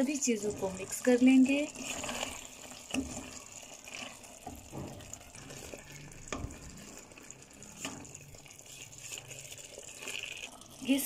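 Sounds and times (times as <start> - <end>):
food frying with soft sizzle: 0.0 - 11.0
spatula stirring in pot: 0.0 - 11.0.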